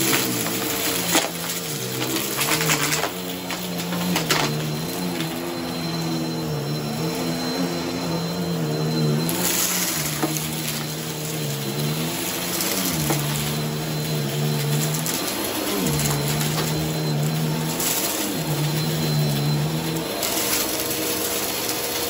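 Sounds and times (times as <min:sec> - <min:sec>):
debris clicking and rattling in bin: 0:00.0 - 0:05.3
vacuum cleaner humming: 0:00.0 - 0:22.0.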